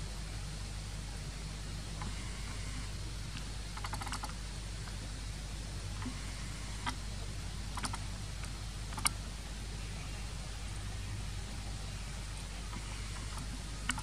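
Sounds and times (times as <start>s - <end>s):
sharp clicks: 3.8s - 4.4s, 7.7s - 9.2s, 12.7s - 14.0s.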